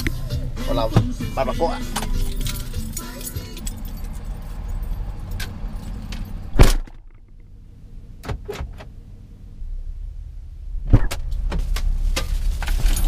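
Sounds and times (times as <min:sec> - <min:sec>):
low outside rumble: 0:00.0 - 0:13.0
truck door slamming shut: 0:06.5 - 0:07.2, 0:08.2 - 0:08.9.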